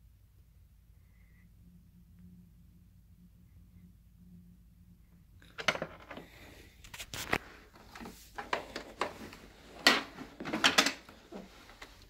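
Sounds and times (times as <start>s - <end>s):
handling clicks knocks and rustles: 5.4s - 6.3s, 6.9s - 12.0s.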